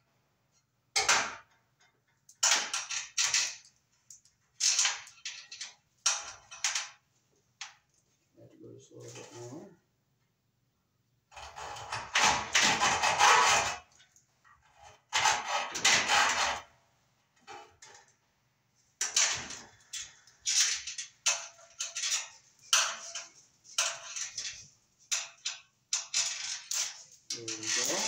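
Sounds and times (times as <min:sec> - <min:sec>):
metal cable armor being cut: 0:11.4 - 0:13.8, 0:15.1 - 0:16.6, 0:26.0 - 0:28.0.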